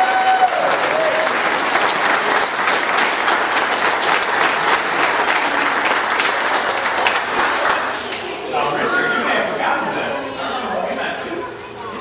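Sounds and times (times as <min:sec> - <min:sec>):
crowd applauding: 0:00.0 - 0:08.5.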